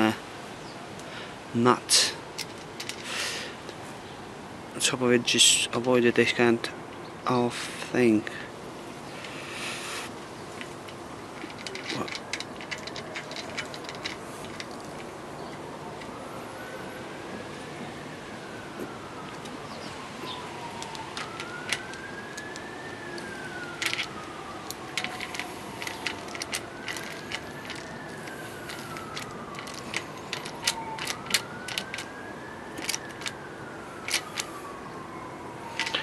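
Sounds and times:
metal parts clicking and tapping: 2.4 - 3.1, 10.6 - 15.6, 20.8 - 22.6, 23.2 - 32.1, 32.8 - 33.4, 34.1 - 34.5, 35.8 - 36.0
emergency siren wailing: 10.1 - 36.0.

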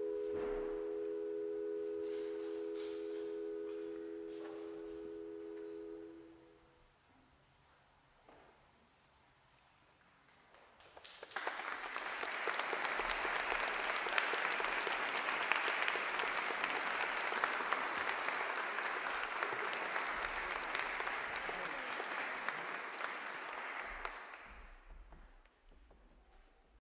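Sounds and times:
audience applauding: 10.8 - 24.9.

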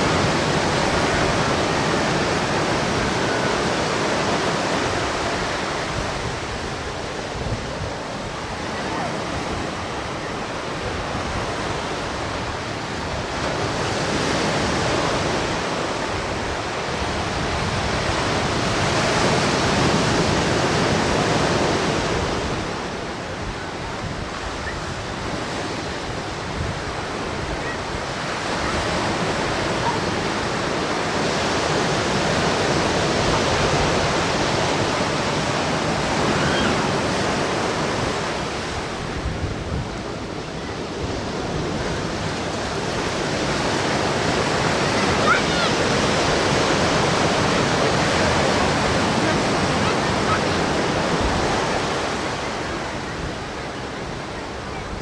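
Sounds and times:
ocean surf breaking on beach: 0.0 - 55.0.

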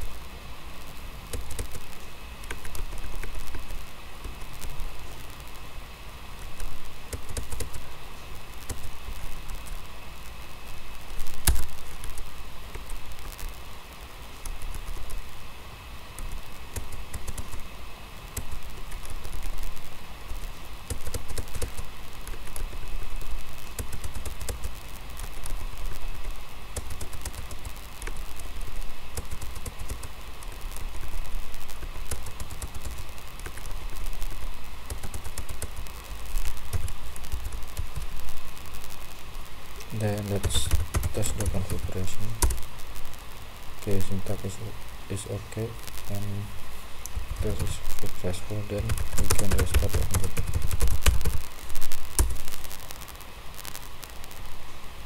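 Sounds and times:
steady low rumble: 0.0 - 54.6
keyboard keystroke clicks: 7.1 - 7.8, 16.2 - 17.6.

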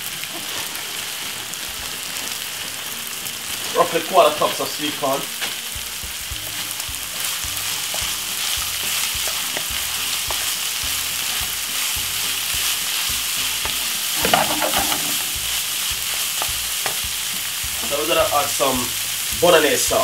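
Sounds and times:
meat and corn sizzling in pan: 0.0 - 20.0
wooden spoon scraping pan: 14.2 - 15.4.

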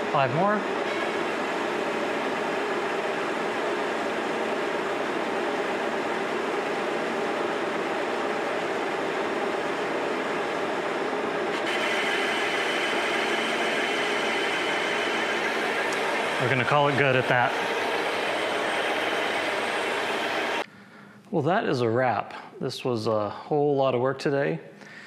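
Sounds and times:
lathe humming: 0.0 - 20.6
cutting tool hiss: 11.6 - 20.6.

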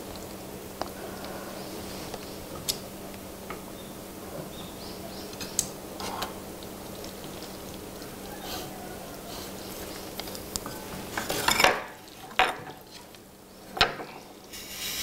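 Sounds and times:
steady low hum: 0.0 - 15.0
utensils clinking on ceramic plates: 11.1 - 12.8.

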